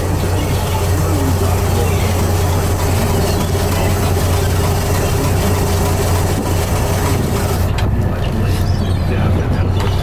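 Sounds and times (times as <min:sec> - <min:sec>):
hiss of wind and water: 0:00.0 - 0:07.8
higher steady hum: 0:00.0 - 0:09.9
boat engine droning: 0:00.0 - 0:10.0.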